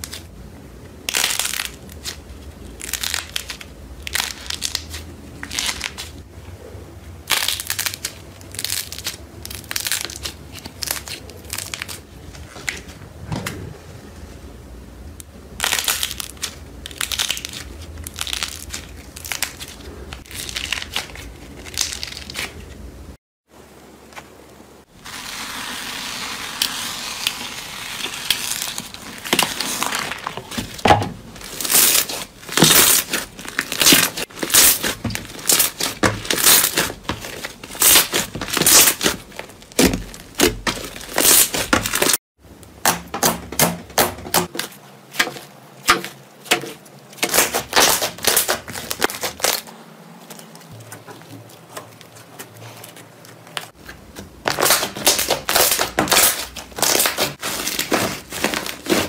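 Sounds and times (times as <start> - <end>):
fizzing crackle: 24.9 - 30.3
hands squishing slime: 27.0 - 42.2, 43.8 - 49.6, 50.3 - 59.0.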